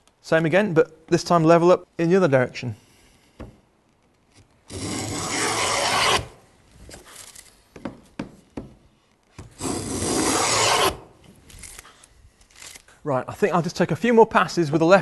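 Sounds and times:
hand plane shaving wood: 4.7s - 6.3s, 9.6s - 11.0s.

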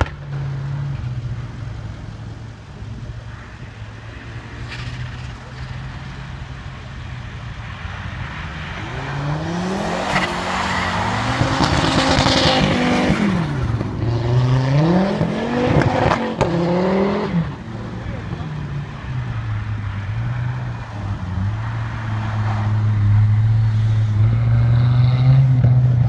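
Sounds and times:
car engine revving hard: 8.8s - 18.0s.

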